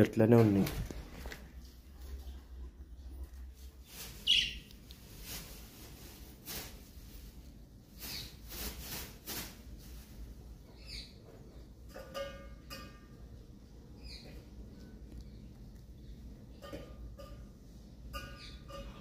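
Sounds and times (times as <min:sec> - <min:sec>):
rustling of leafy greens: 0:03.3 - 0:10.5
faint bird calls: 0:04.1 - 0:04.7.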